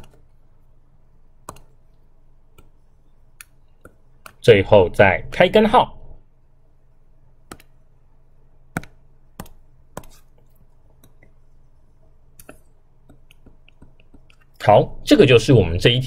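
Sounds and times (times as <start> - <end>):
faint low hum: 0.0 - 16.0
stylus tapping on a screen: 1.4 - 1.9, 3.4 - 4.4, 7.4 - 7.8, 8.7 - 11.4, 12.4 - 14.5.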